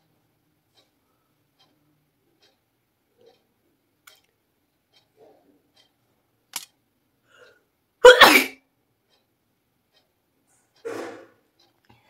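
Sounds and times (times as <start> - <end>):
woman sneezing: 8.0 - 8.6.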